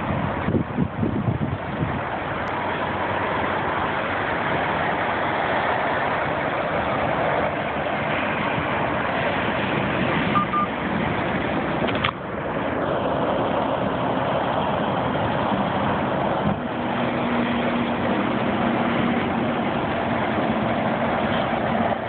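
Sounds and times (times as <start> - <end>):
highway traffic rushing: 0.0 - 22.0
short high beeps: 10.4 - 10.7.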